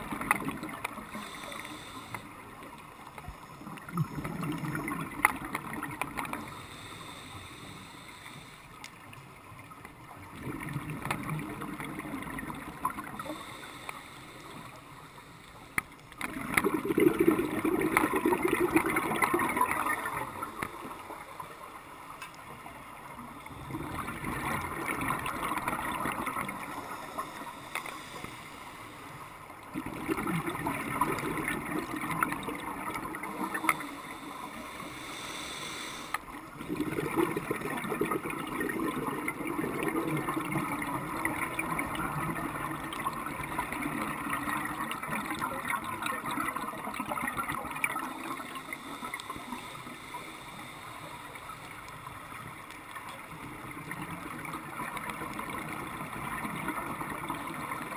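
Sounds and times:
scuba regulator bubbling underwater: 3.6s - 6.4s, 16.2s - 21.0s, 23.5s - 27.5s, 29.7s - 48.9s.

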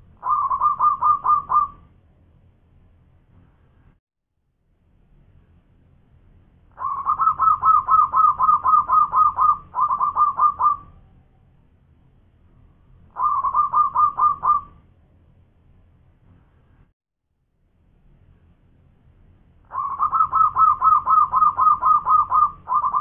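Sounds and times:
dove cooing song: 0.1s - 1.9s, 6.7s - 11.0s, 13.1s - 14.8s, 19.7s - 23.0s.

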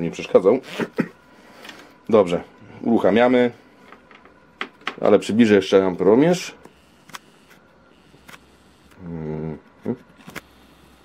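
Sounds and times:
man humming: 8.9s - 10.2s.

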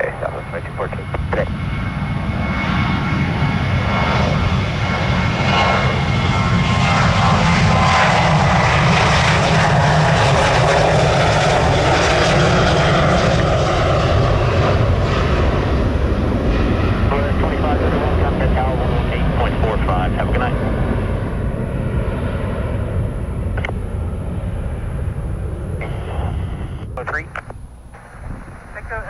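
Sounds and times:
jet engines at takeoff power: 0.0s - 29.0s.

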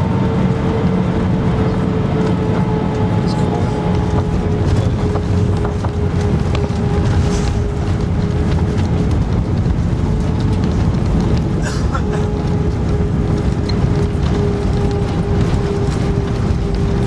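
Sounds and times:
aircraft engines and wheels rumbling: 0.0s - 17.0s
steady cabin hum: 0.0s - 17.0s.

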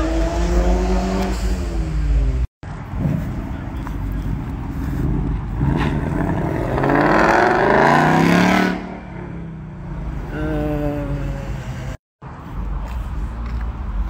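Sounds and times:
car engine accelerating hard: 0.0s - 10.3s.

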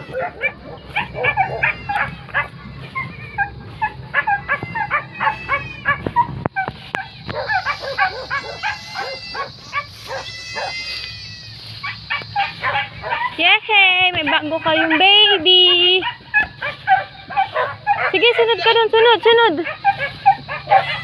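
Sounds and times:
short high animal cries: 7.0s - 12.5s.

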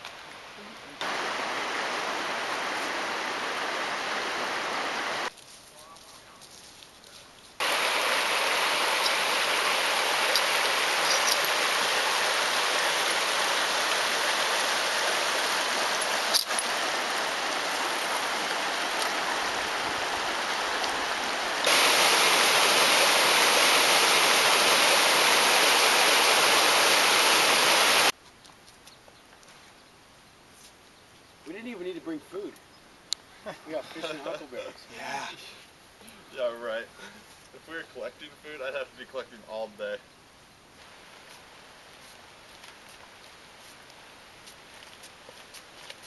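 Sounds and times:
river water rushing: 1.0s - 5.3s, 7.6s - 28.1s.

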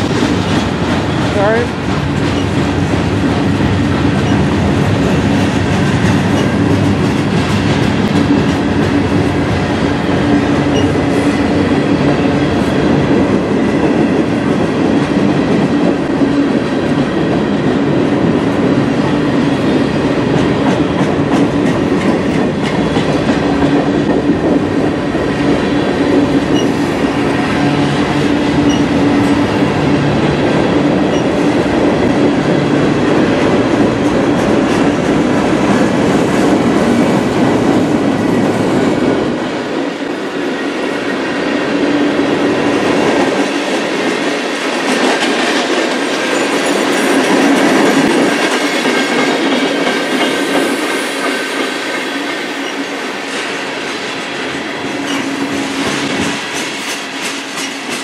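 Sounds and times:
freight train rolling past: 0.0s - 58.0s.

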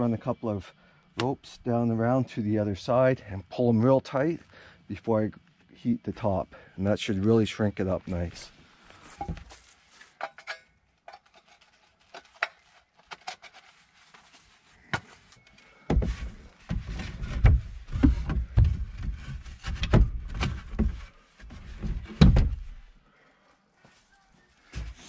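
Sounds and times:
heavy wooden thumps and scraping: 15.9s - 22.8s.

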